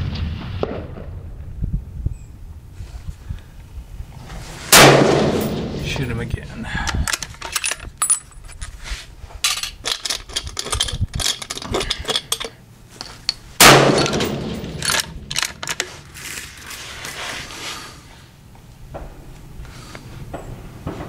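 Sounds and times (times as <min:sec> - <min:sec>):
rifle shot: 0:00.0 - 0:01.2, 0:04.7 - 0:05.8, 0:13.6 - 0:15.2
sharp clicks and knocks: 0:09.4 - 0:16.0.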